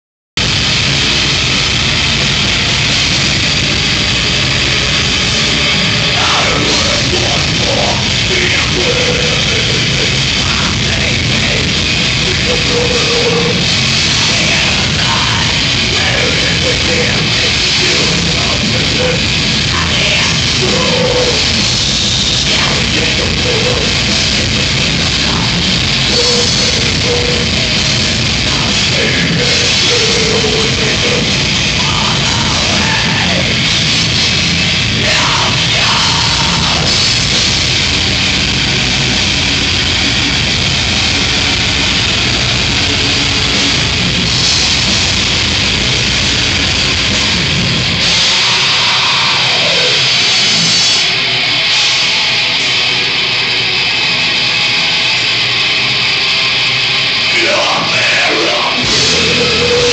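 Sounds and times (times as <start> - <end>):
heavy metal band playing live: 0.4 - 59.9
singer's vocals: 5.4 - 21.7, 22.3 - 33.8, 34.7 - 37.4, 48.2 - 50.4, 57.3 - 59.9.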